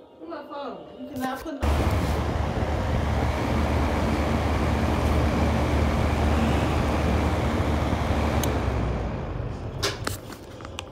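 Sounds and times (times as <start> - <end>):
heater clicks: 1.6 - 10.2
space heater fan running: 1.6 - 10.5.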